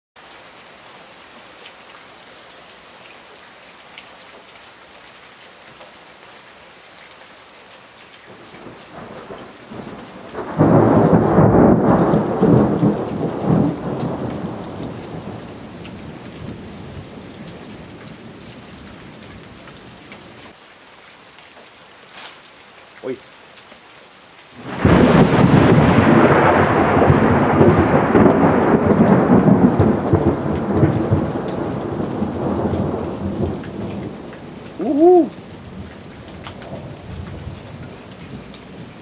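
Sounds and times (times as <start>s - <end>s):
steady rain falling: 0.2s - 39.0s
thunder crash and rumbling: 10.4s - 15.4s, 24.6s - 33.6s.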